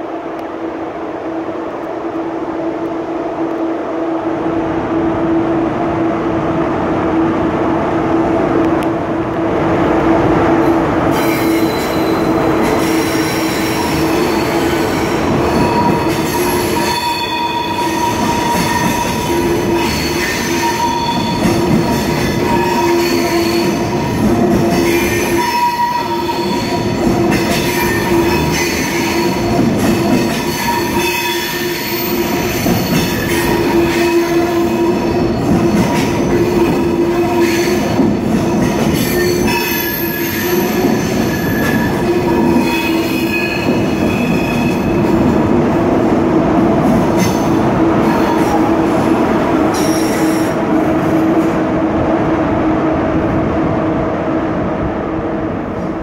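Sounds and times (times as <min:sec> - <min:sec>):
train rumble and hum: 0:00.0 - 0:56.0
train wheels squealing: 0:11.1 - 0:45.0, 0:49.7 - 0:50.6.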